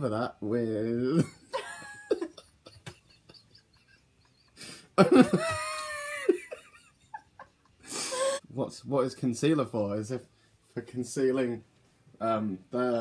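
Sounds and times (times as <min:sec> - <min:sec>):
people laughing: 0:01.2 - 0:08.4.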